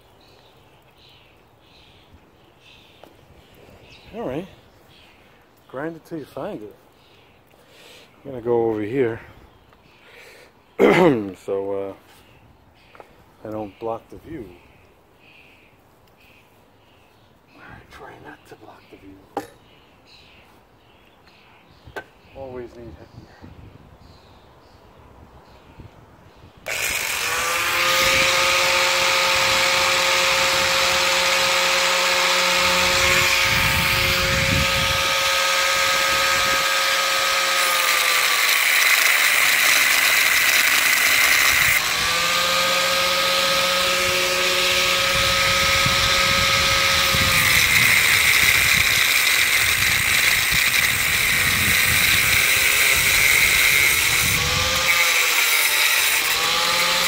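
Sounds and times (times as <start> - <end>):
angle grinder grinding metal: 26.7 - 57.0.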